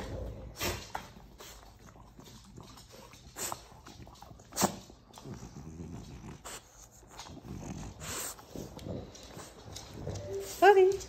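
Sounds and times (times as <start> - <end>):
dog snuffling: 0.0 - 11.0
dog sniffing sharply: 8.0 - 8.5.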